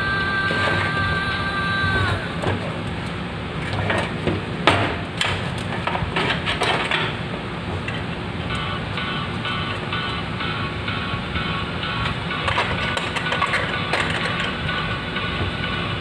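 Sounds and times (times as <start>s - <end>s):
sheet metal clanks and clicks: 3.6s - 9.0s, 12.0s - 15.5s.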